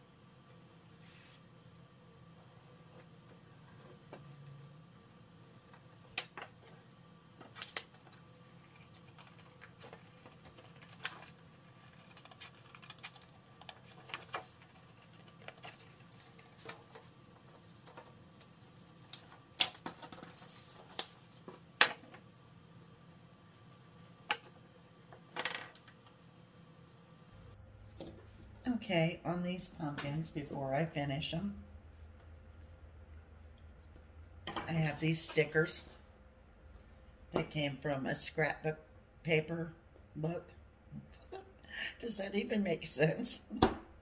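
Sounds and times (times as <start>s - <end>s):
scissors snipping paper: 8.7s - 18.1s
paper rustling: 8.9s - 21.7s.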